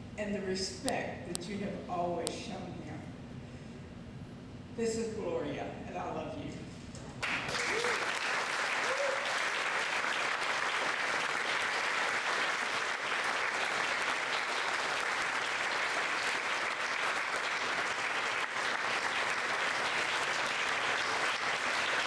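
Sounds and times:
audience applauding: 7.2s - 22.0s.

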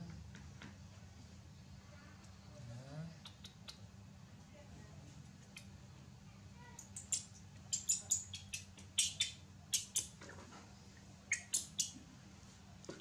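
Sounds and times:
baby monkey squeaking: 6.9s - 10.2s, 11.3s - 12.0s.

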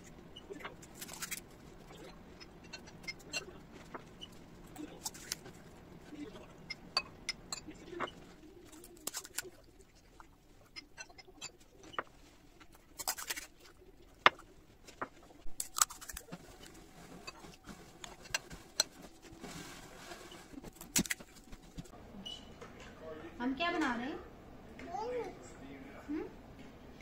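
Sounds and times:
crisp shells cracking and crunching: 0.8s - 1.4s, 5.0s - 5.5s, 8.7s - 9.6s, 12.8s - 13.9s, 15.5s - 16.8s, 20.6s - 21.8s.

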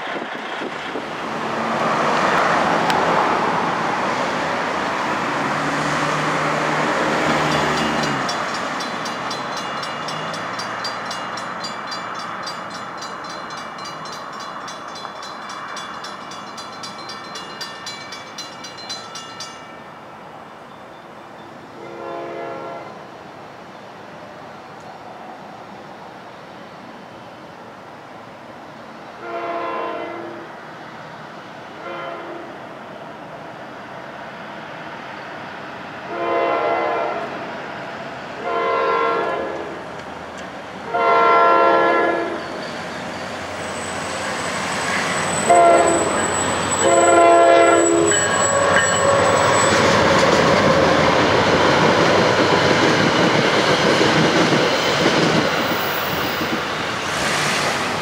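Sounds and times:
approaching train noise: 0.0s - 58.0s
train air horn blasts: 21.8s - 23.0s, 29.2s - 30.4s, 31.8s - 32.5s, 36.1s - 37.3s, 38.4s - 39.8s, 40.9s - 42.4s, 45.4s - 49.2s.

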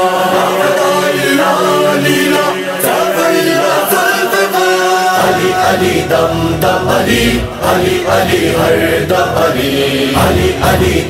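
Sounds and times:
devotional song chanting: 0.0s - 11.0s
deep bass: 5.4s - 9.6s.

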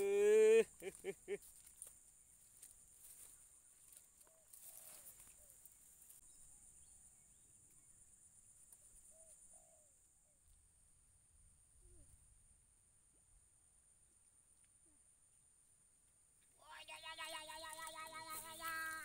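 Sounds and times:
high insect drone: 15.2s - 19.0s.

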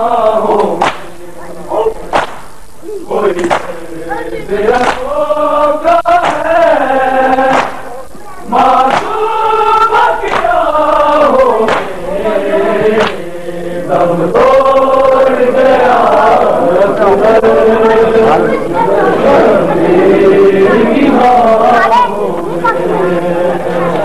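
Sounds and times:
men chanting in unison: 0.0s - 2.2s, 3.1s - 24.0s
hand slaps on chest: 0.6s - 1.1s, 2.1s - 2.4s, 3.4s - 3.7s, 4.8s - 5.0s, 6.2s - 6.4s, 7.5s - 7.8s, 8.9s - 9.2s, 10.3s - 10.5s, 11.7s - 11.9s, 13.0s - 13.2s.

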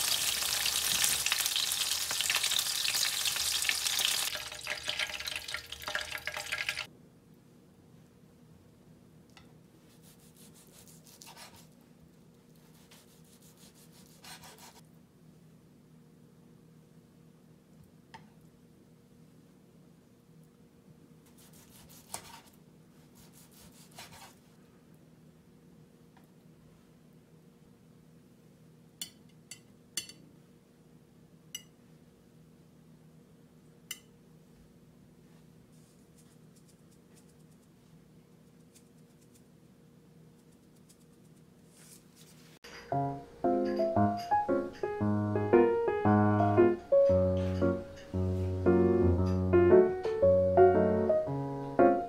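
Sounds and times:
knife sawing through steak: 10.0s - 11.6s, 12.8s - 14.8s, 21.3s - 22.5s, 23.2s - 24.4s
metal tongs clinking on plate: 29.0s - 30.2s.

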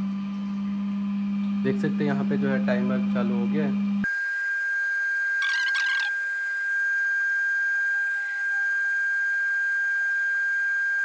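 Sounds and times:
centrifuge high-pitched whine: 4.0s - 11.0s.

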